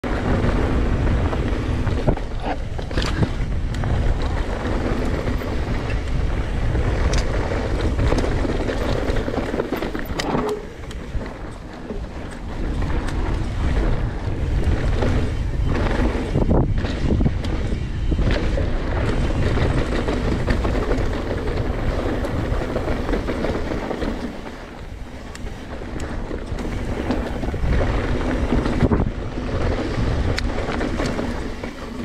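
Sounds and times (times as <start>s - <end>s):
bike knocks and rattles: 0.0s - 32.0s
tyres on dirt and gravel: 0.0s - 32.0s
wind rushing over microphone: 0.0s - 32.0s.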